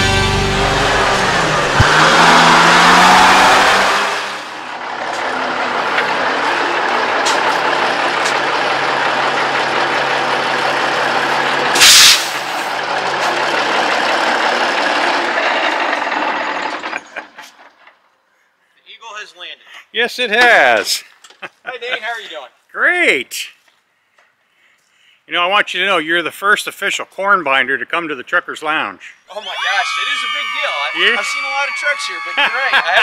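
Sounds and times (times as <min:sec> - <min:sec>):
diesel engine idling: 0:00.0 - 0:18.0
air brake hiss: 0:11.8 - 0:12.7.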